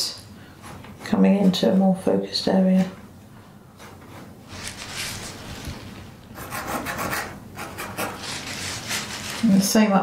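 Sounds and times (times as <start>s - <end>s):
paintbrush scrubbing paint: 4.1s - 9.6s.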